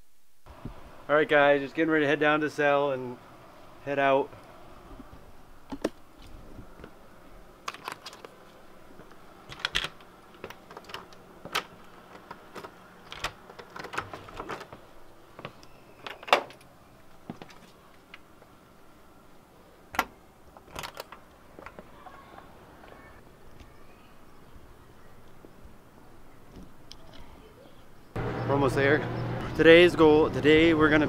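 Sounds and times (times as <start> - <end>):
door clicks and knocks: 9.5 - 14.8
keys jingling: 9.5 - 14.8.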